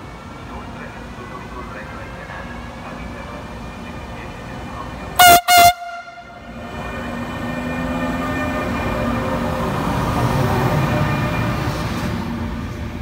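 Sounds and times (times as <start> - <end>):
locomotive horn blasts: 5.2 - 6.6.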